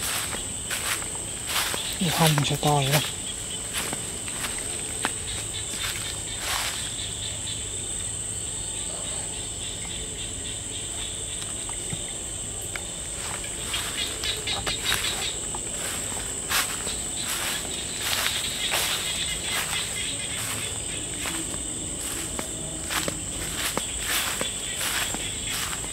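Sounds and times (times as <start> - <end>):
footsteps crunching on dry leaves: 0.0 - 7.2, 12.8 - 25.9
night insects chorus: 0.0 - 25.9.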